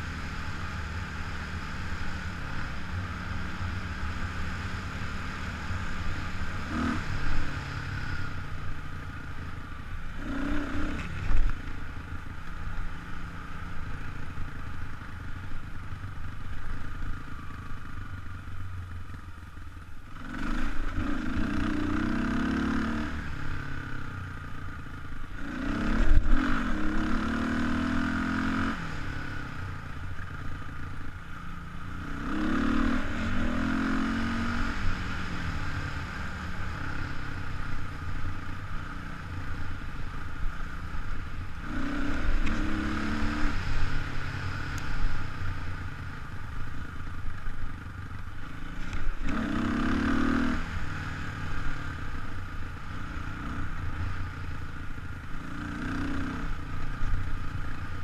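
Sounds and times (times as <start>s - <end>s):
dirt bike engine revving: 10.1s - 11.3s, 20.2s - 23.5s, 25.4s - 29.2s, 32.0s - 37.2s, 41.6s - 45.2s, 48.7s - 52.2s.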